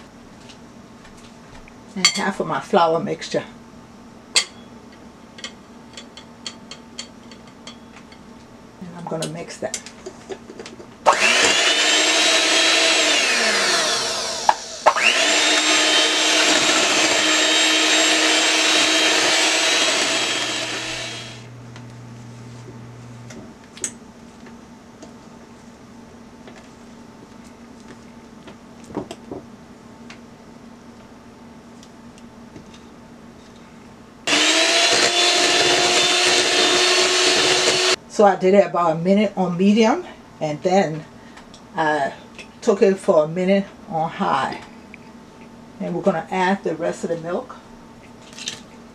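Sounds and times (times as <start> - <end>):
electric hand mixer running: 11.1 - 21.9, 34.3 - 38.0.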